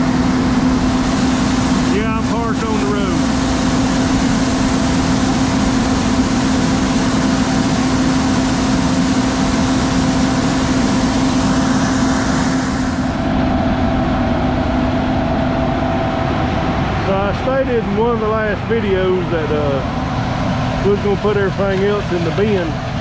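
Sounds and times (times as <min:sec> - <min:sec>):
heavy vehicle engine running: 0:00.0 - 0:23.0.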